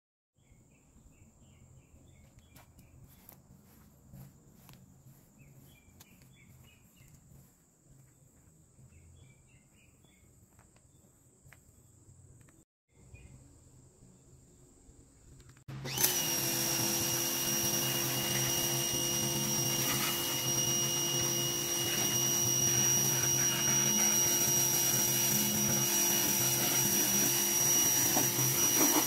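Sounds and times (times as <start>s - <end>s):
bird chirps: 5.1s - 7.5s
high-pitched insect drone: 16.8s - 29.0s.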